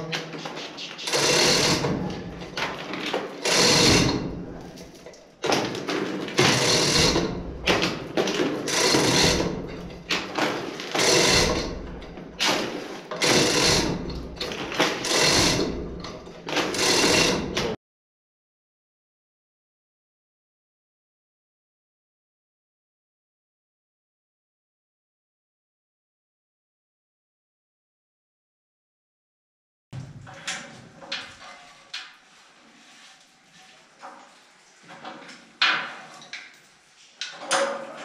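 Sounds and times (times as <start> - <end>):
chain hoist chain clattering: 1.1 - 5.1, 8.6 - 17.6.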